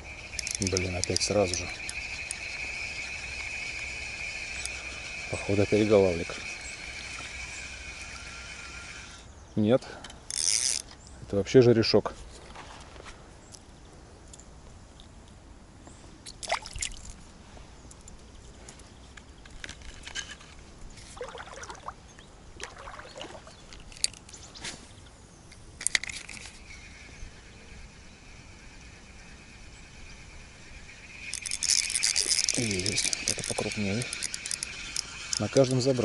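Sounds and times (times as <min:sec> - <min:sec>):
fishing reel whining: 0:00.0 - 0:09.3, 0:10.2 - 0:10.9, 0:25.8 - 0:36.0
reel clicks and scratches: 0:00.1 - 0:09.3, 0:10.2 - 0:11.0, 0:19.1 - 0:21.8, 0:23.7 - 0:24.4, 0:25.5 - 0:27.2, 0:30.6 - 0:36.0.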